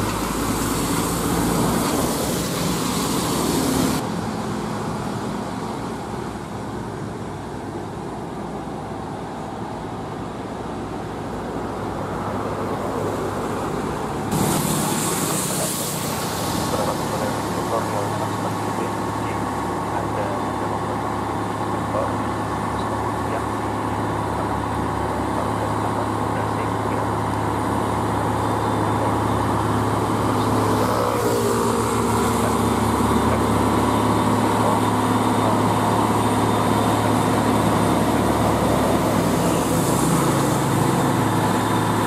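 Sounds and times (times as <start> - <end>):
loud hiss: 0.0 - 4.0, 14.3 - 19.8
traffic noise: 0.0 - 42.0
truck diesel engine: 0.0 - 42.0.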